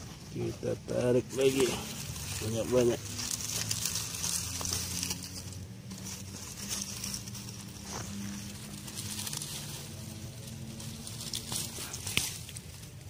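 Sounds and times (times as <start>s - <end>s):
leaves and stems rustling: 0.0s - 13.0s
small snaps of stems: 11.0s - 12.9s.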